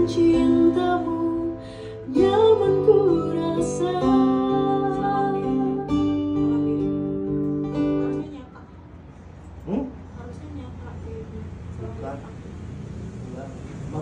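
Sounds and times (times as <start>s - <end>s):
person singing: 0.0s - 7.1s
guitar: 0.0s - 8.9s.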